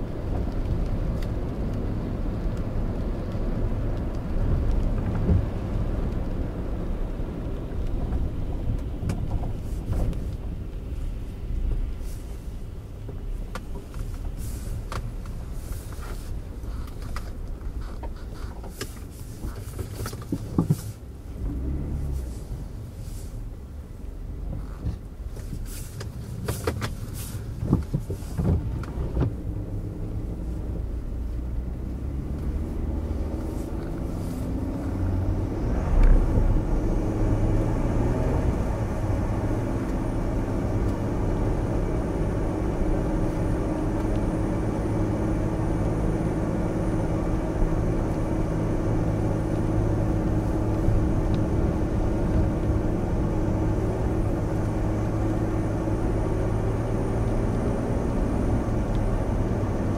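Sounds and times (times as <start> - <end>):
car engine and tyre noise: 0.0 - 59.9.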